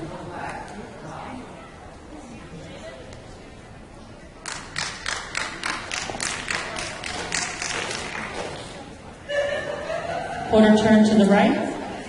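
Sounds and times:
audience clapping: 4.4 - 8.8.

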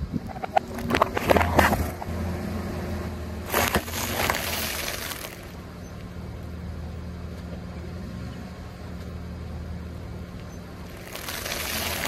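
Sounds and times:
car engine humming: 0.0 - 12.0
tyre crunching plastic packets: 3.5 - 5.6, 10.9 - 12.0.

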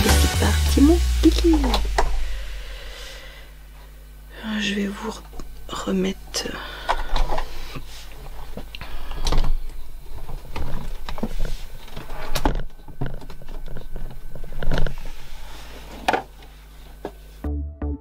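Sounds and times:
faint steady hum: 0.0 - 17.4.

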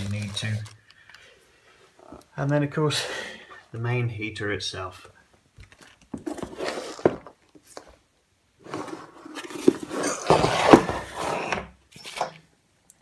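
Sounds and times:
packaging rustling: 0.0 - 0.9.

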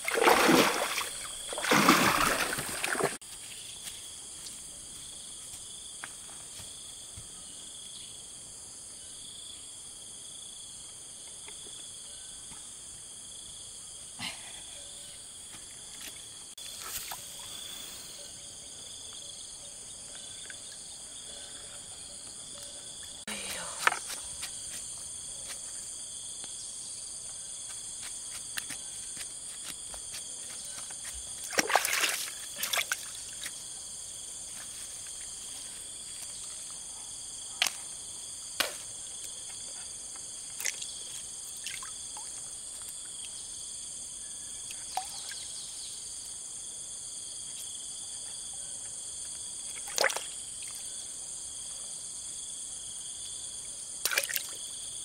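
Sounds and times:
water splashes and drips: 0.0 - 3.2, 30.8 - 33.5, 40.5 - 43.4, 44.7 - 45.4, 49.7 - 50.8, 54.0 - 54.7
insects droning: 0.0 - 55.0.

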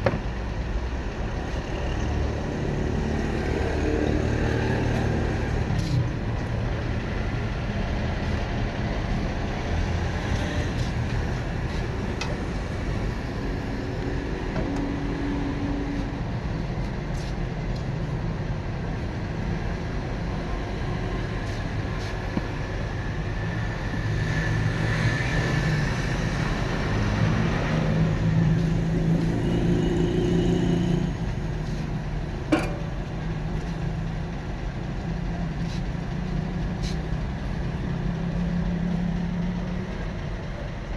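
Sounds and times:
low engine rumble: 25.9 - 40.9
sharp metallic clank: 32.5 - 33.0.

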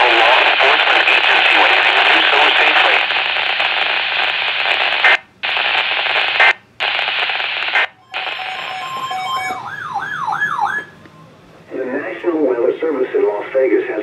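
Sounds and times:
buzzing data bursts over radio: 0.0 - 9.5
warbling alarm tone: 7.9 - 11.4
alert tones: 8.0 - 11.0.

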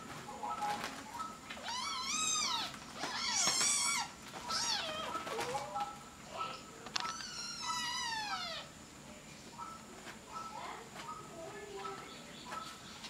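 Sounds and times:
kittens mewing: 1.6 - 5.5, 6.4 - 8.8.

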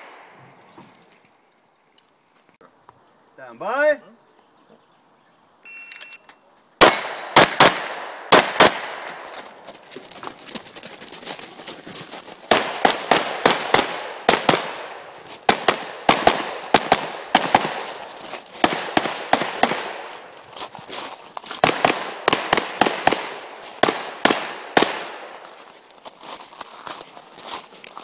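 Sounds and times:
pistol shots echoing: 6.8 - 9.6, 12.5 - 20.5, 21.6 - 25.6.

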